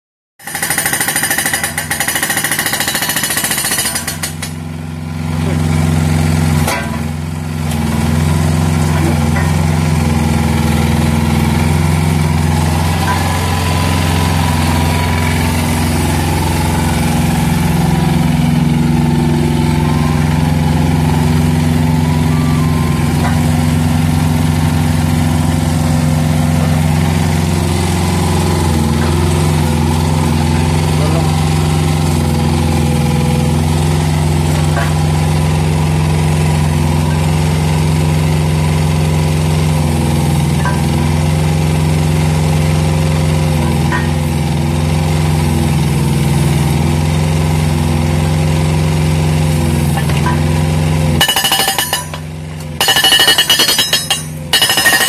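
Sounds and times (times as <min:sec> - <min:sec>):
hydraulic breaker hammering: 0:00.4 - 0:04.8, 0:06.4 - 0:08.1, 0:49.7 - 0:55.0
diesel engine running: 0:00.4 - 0:55.0.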